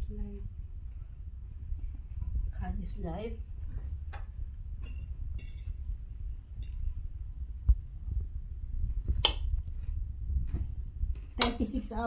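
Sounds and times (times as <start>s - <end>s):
low rumble: 0.0s - 12.0s
dishes and cutlery clinking: 4.8s - 5.8s.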